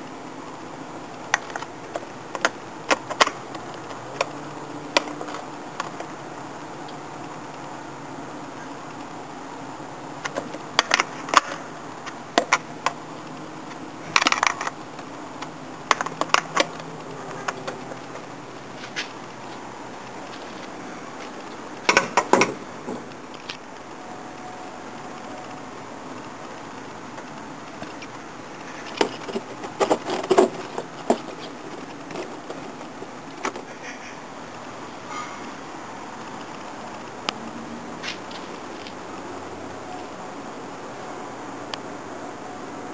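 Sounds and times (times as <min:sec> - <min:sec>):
steady hiss: 0:00.0 - 0:42.9
sharp clicks and knocks: 0:10.2 - 0:23.9, 0:27.1 - 0:33.7.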